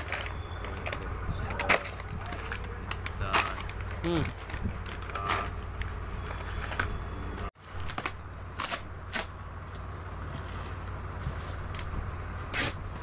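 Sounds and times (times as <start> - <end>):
cardboard and plastic rustling: 0.0 - 13.0.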